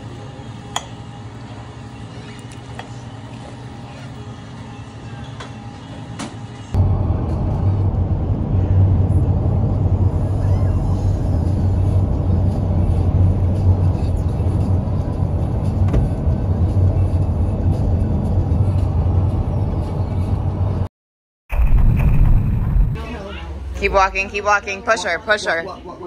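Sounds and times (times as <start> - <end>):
vehicle rumble from inside: 6.7 - 20.9.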